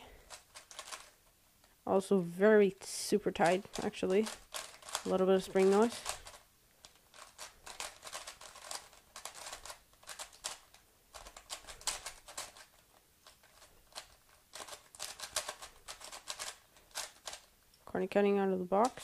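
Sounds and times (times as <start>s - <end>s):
plastic puzzle cube clicking: 0.2s - 1.2s, 3.4s - 17.5s.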